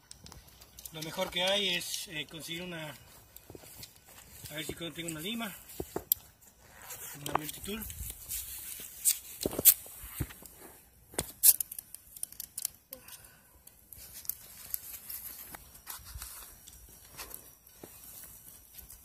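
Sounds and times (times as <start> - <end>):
handling sounds: 0.0 - 19.0.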